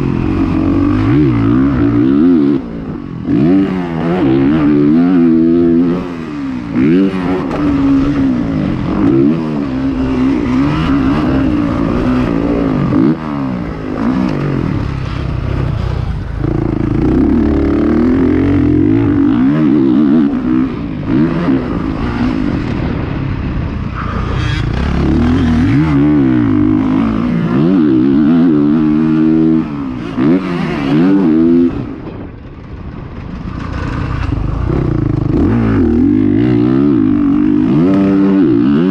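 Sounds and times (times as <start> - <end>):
dirt bike engine revving: 0.0 - 32.8, 33.4 - 38.9.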